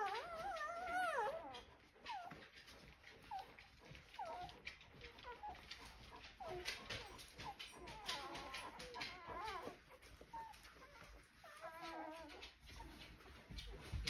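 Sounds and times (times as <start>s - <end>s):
puppies crying and squeaking: 0.0s - 14.0s.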